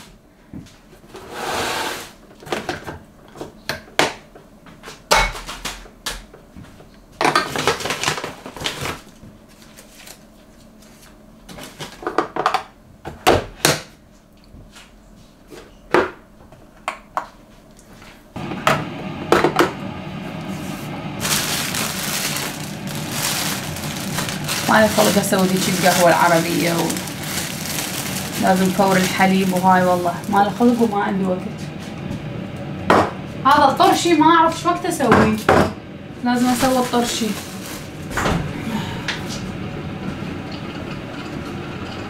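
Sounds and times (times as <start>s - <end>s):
coffee machine brewing hum: 16.4s - 42.0s
plastic bag crinkling: 21.2s - 31.2s, 36.4s - 38.2s.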